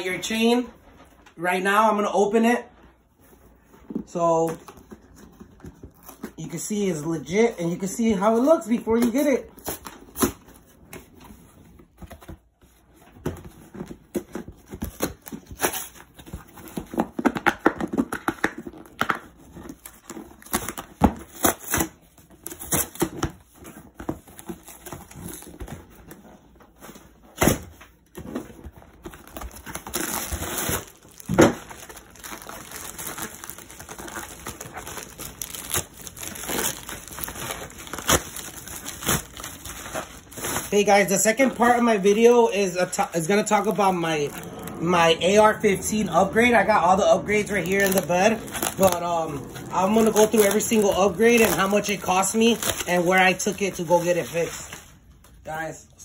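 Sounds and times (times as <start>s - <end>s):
padded mailer rustling: 27.9s - 55.1s
cardboard envelope tearing: 29.0s - 54.9s.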